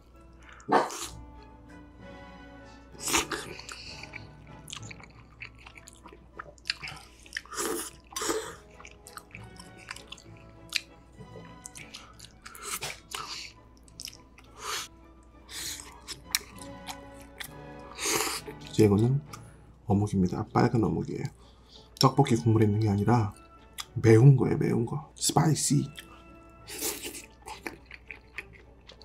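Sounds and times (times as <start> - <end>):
soft background music: 0.0 - 29.0
slurping and chewing: 0.3 - 1.5, 2.9 - 19.5, 25.9 - 29.0.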